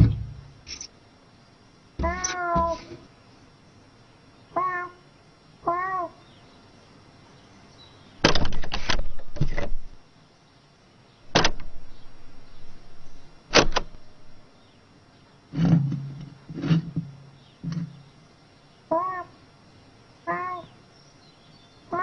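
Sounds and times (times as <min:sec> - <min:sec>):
low rumbling: 0:00.0 - 0:00.6.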